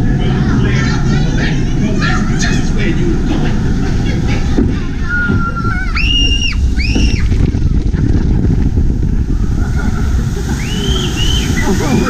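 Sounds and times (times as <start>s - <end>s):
low rumble of ride: 0.0s - 12.0s
wind on microphone: 0.0s - 12.0s
riders screaming: 5.0s - 7.8s.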